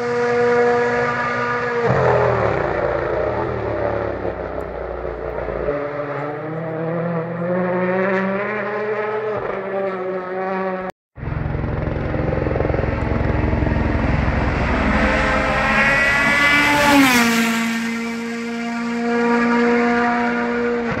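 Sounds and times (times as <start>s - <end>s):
rally car engine passing: 0.0s - 21.0s.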